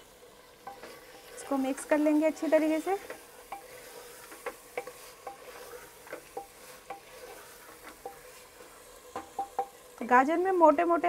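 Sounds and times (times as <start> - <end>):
faint sizzle of frying: 0.0 - 11.0
wooden spatula scraping thick food: 0.4 - 10.0
spatula knocking on metal pot: 9.2 - 9.8.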